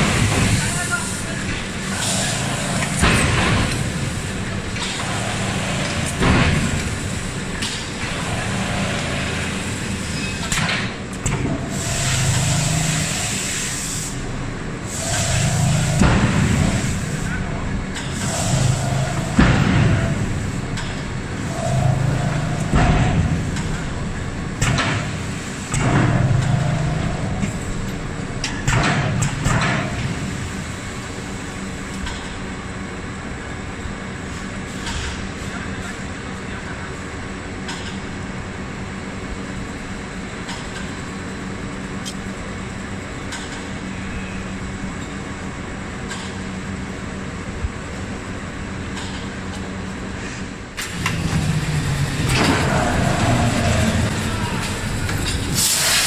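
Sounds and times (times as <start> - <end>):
machinery rushing noise: 0.0 - 31.8, 50.0 - 56.0
low mechanical hum: 0.0 - 56.0.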